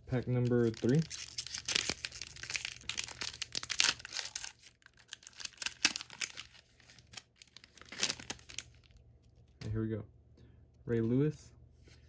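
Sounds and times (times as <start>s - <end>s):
wrapper tearing and crinkling: 0.2s - 9.0s.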